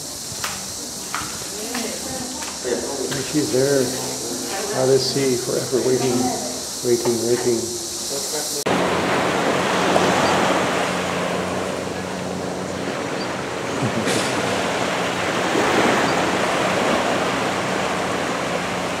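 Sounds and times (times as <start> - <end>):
small waves washing on beach: 0.0 - 19.0.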